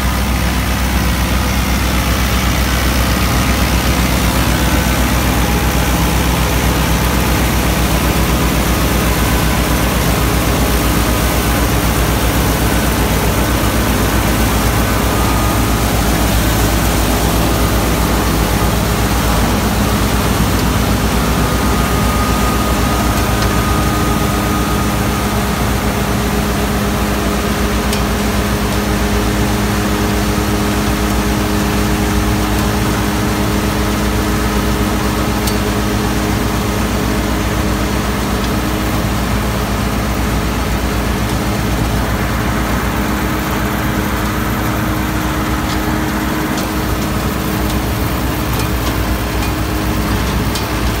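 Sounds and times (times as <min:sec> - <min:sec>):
tractor diesel engine running: 0:00.0 - 0:51.0.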